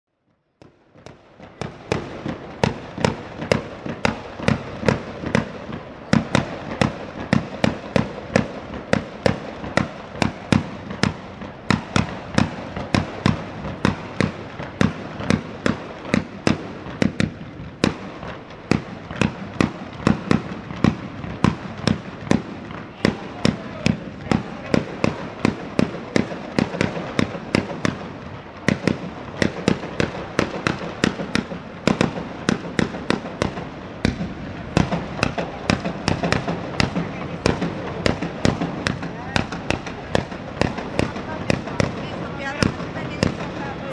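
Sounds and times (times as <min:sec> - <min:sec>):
rapid loud firecracker bangs: 0:00.3 - 0:43.9.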